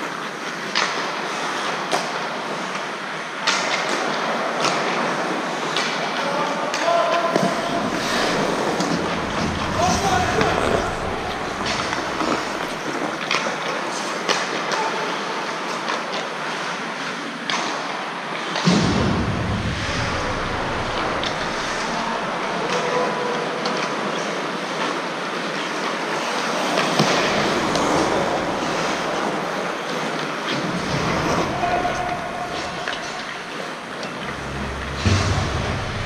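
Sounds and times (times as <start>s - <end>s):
hockey sticks clacking on puck: 0.0s - 2.8s, 3.4s - 14.9s, 23.6s - 34.3s
rink noise: 7.4s - 13.3s, 26.3s - 36.0s.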